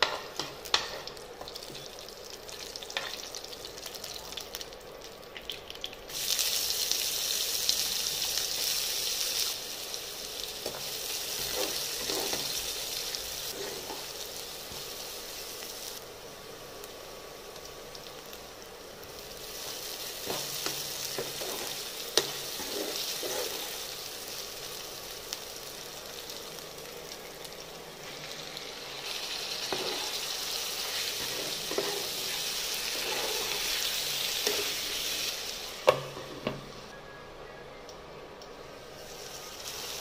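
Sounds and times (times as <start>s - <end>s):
onions sizzling in oil: 0.0s - 36.9s, 38.8s - 40.0s
spatula stirring: 20.2s - 23.8s, 29.6s - 34.9s.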